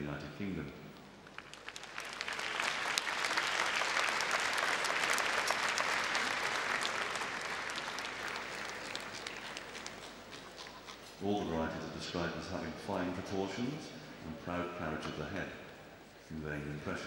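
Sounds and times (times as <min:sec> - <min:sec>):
audience applauding: 0:01.2 - 0:10.6.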